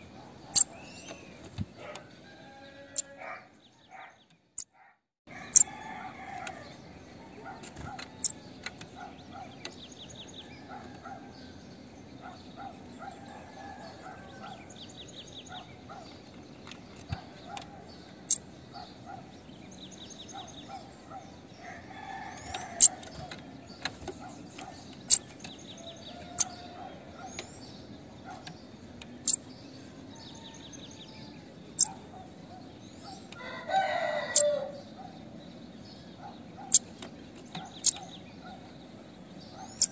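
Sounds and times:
bird high chips and buzzy trills: 39.7 - 39.9.

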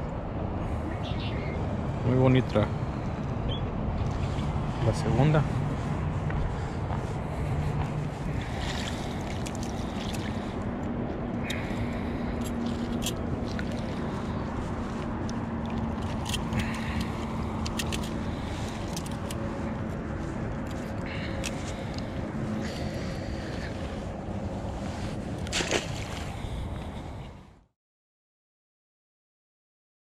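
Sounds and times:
handling clicks and rustles: 14.6 - 22.0.

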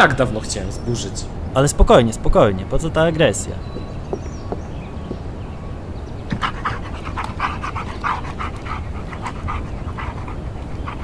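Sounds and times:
dog panting: 6.3 - 11.0.

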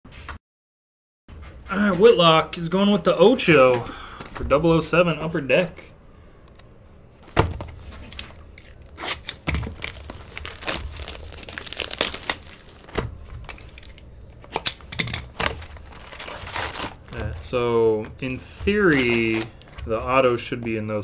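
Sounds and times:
shrink wrap tearing and crinkling: 7.8 - 17.6, 18.7 - 19.8.

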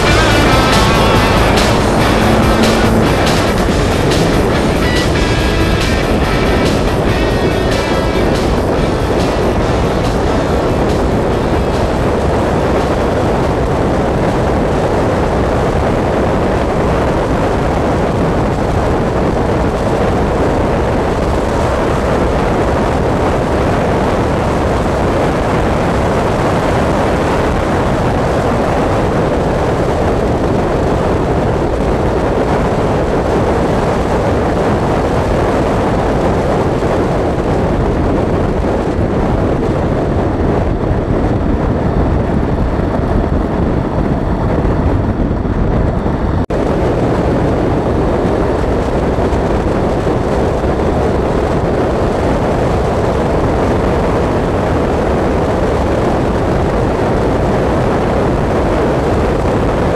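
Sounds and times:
motorcycle engine and wind rush: 0.0 - 59.9.

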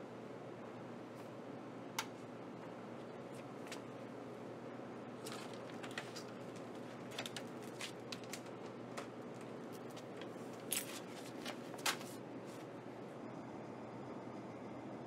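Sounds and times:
steady low hum: 0.0 - 15.0
handling clicks and rustles: 5.2 - 12.7.

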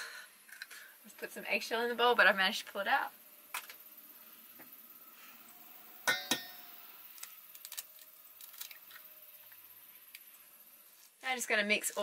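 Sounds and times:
bowl ringing: 6.0 - 6.9.

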